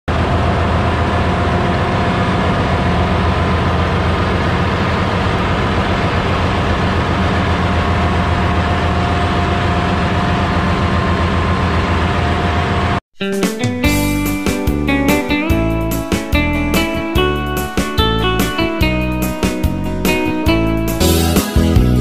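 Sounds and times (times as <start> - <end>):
engine room machinery hum: 0.1 - 13.0
machinery whining tones: 0.1 - 13.0.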